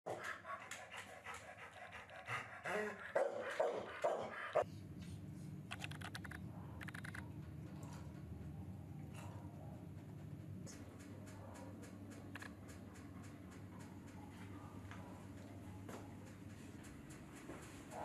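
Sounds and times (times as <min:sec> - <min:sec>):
dog panting: 0:00.1 - 0:04.7
rapid clicking: 0:05.7 - 0:07.2.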